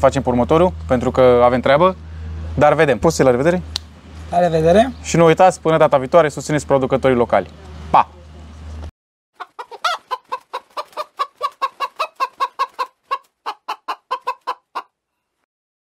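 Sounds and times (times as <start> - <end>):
hen clucking: 9.4 - 15.0.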